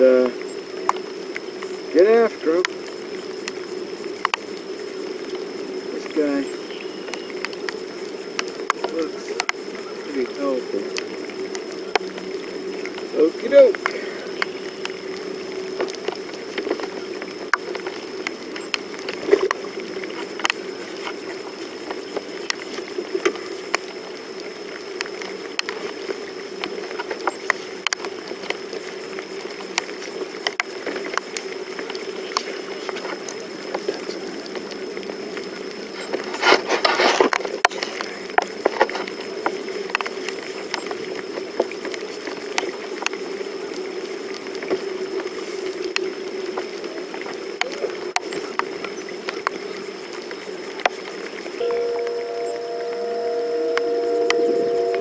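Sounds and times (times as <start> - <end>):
rain hiss: 0.0 - 55.0
raindrops ticking on boat: 0.0 - 55.0
rustle or splash: 0.0 - 55.0
steady hum: 51.6 - 55.0.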